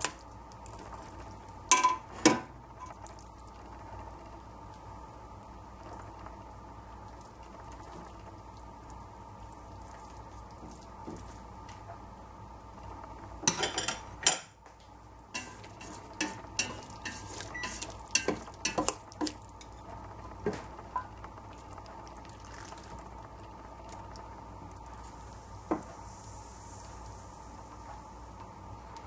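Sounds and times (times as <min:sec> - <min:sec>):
metal utensils clinking on pot and bowl: 0:01.7 - 0:02.0, 0:13.5 - 0:14.5, 0:15.4 - 0:19.8
soft hiss of pouring: 0:02.7 - 0:13.4, 0:21.1 - 0:29.0.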